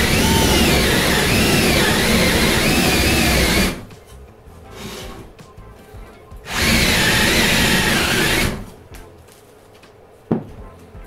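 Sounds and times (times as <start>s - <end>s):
drill boring into wood: 0.0s - 3.9s, 6.5s - 8.7s.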